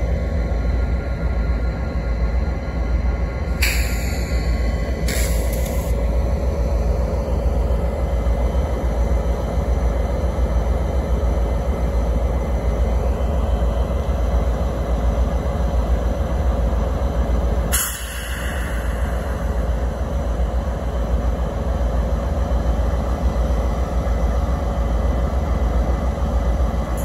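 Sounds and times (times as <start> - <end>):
diesel locomotives idling: 0.0 - 27.0.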